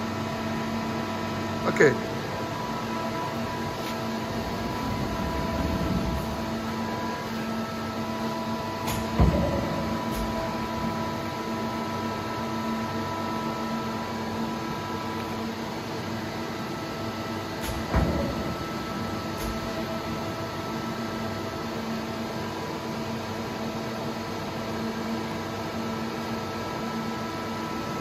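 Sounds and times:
machine hum: 0.1 - 22.2
heavy machine clunks: 4.2 - 7.3, 8.8 - 11.1, 17.6 - 20.4.

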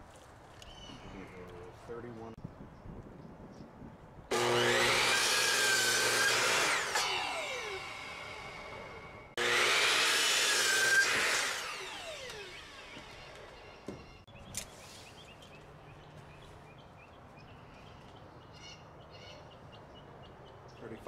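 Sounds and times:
saw motor winding down: 4.3 - 14.2
miter saw cutting wood: 4.3 - 14.3.

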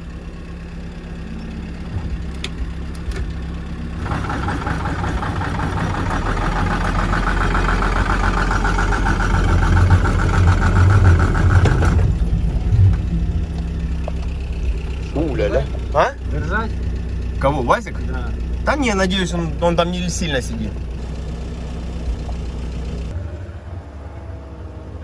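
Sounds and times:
engine idling: 0.0 - 25.0
electric winch whining: 0.9 - 16.6.

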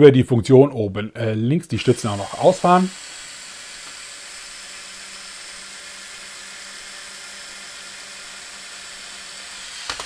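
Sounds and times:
small electric motors whirring: 1.7 - 10.0.

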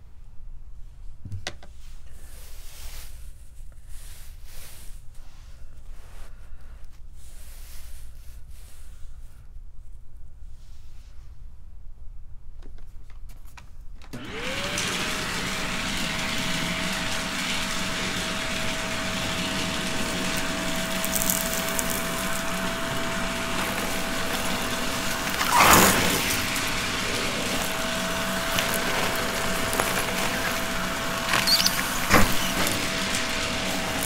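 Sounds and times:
vacuum cleaner running: 14.1 - 34.0
loud crackling burst: 14.9 - 34.0.

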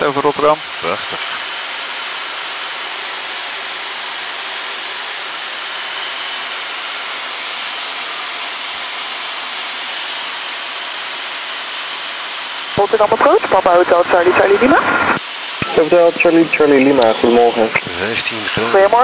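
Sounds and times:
cockpit ventilation hiss: 11.0 - 19.0.

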